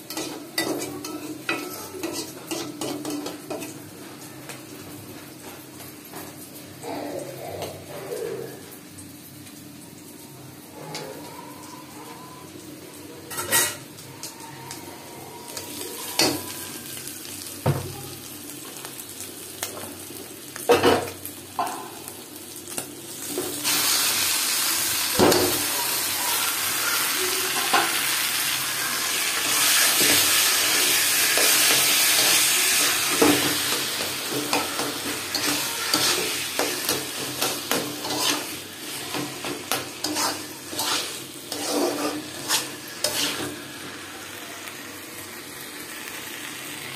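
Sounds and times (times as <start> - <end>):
leaves sizzling in hot oil: 0.0 - 7.0, 7.8 - 46.9
metal spatula scraping a pan: 29.4 - 43.6.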